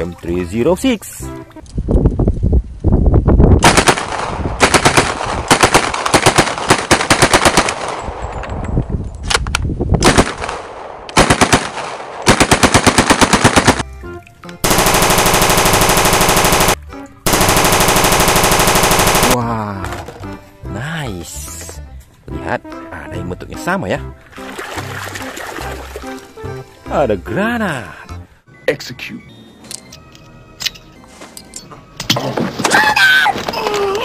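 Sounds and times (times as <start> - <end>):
submachine gun firing bursts: 3.6 - 8.0, 10.0 - 13.8, 14.6 - 19.4
electronic machine-gun sound effect: 14.7 - 19.4.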